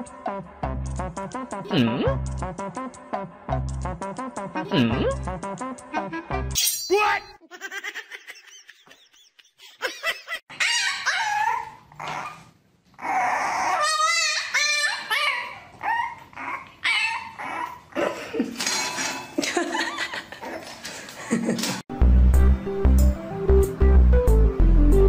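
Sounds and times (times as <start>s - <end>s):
puppy yipping and whining: 10.5s - 18.0s.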